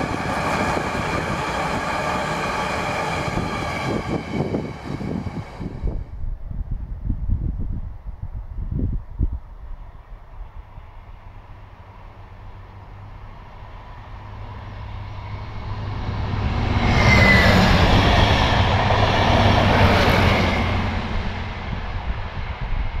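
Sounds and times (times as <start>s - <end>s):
high squeal: 0.0s - 6.1s, 16.7s - 18.7s
train engine hum: 0.0s - 23.0s.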